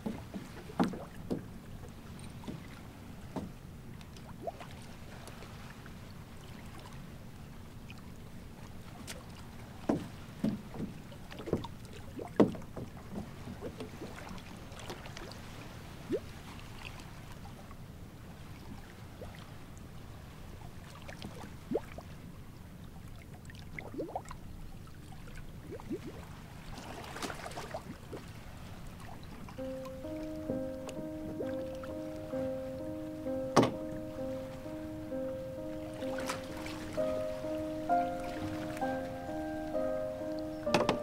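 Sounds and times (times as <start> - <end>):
water lapping against boat hull: 0.0 - 41.0
low wind rumble: 27.7 - 41.0.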